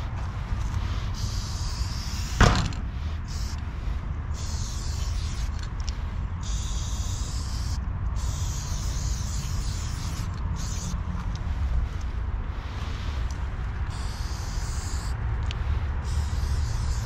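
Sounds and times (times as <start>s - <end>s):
spray paint can hissing: 0.6s - 11.0s, 13.8s - 17.0s.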